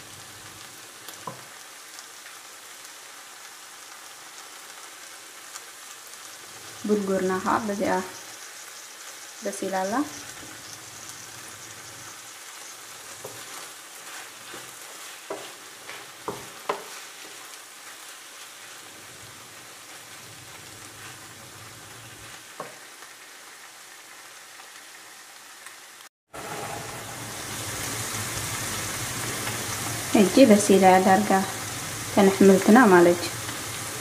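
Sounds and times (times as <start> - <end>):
vegetables sizzling in a frying pan: 0.0 - 34.0
wooden spatula knocking: 13.2 - 17.0.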